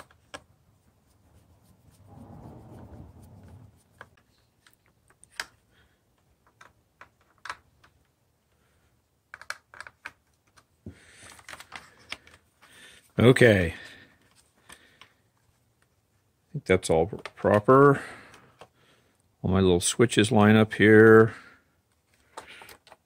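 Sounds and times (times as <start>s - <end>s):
short rubbing noise: 1.0s - 4.2s.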